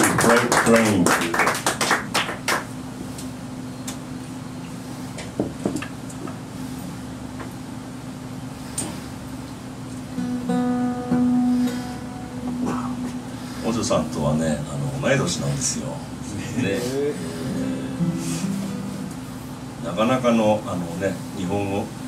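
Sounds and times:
guitar string plucked ringing: 0:10.1 - 0:13.5.

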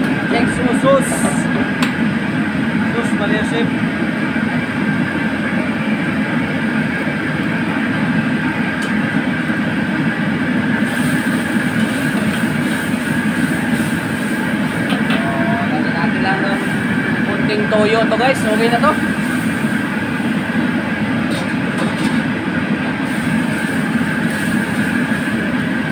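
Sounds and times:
gas burner rushing: 0:00.0 - 0:25.9
sauce sizzling in hot wok: 0:10.6 - 0:15.1, 0:18.4 - 0:22.4, 0:23.0 - 0:25.8.

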